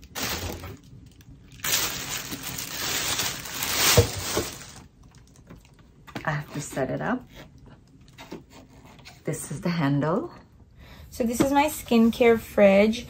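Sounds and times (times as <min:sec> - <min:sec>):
cardboard packaging handled: 0:00.0 - 0:00.9, 0:01.5 - 0:04.9
plastic bag crinkling: 0:00.0 - 0:05.9.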